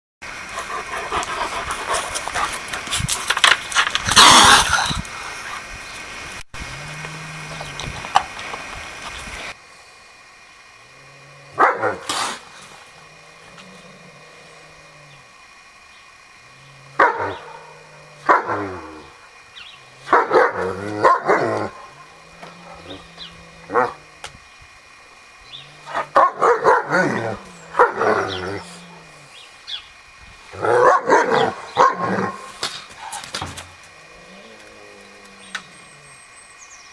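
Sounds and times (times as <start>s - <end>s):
steady noisy hiss: 0.2s - 36.9s
dog barking: 11.6s - 12.1s, 17.0s - 17.4s, 18.3s - 18.7s, 20.1s - 21.7s, 26.0s - 27.0s, 27.8s - 28.1s, 30.6s - 32.5s.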